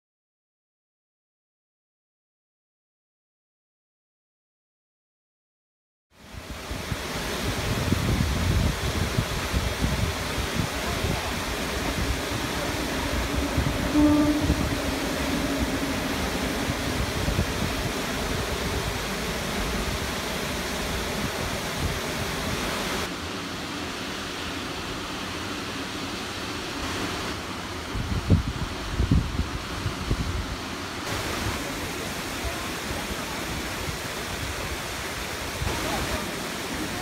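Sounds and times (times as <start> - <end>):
waterfall rushing: 6.2 - 37.0
wind buffeting microphone: 6.3 - 23.1, 27.8 - 30.6
horn-like tone: 12.6 - 16.6.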